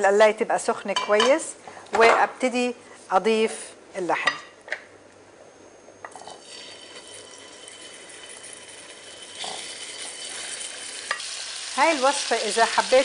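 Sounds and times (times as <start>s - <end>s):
meat sizzling in hot oil: 6.4s - 13.0s.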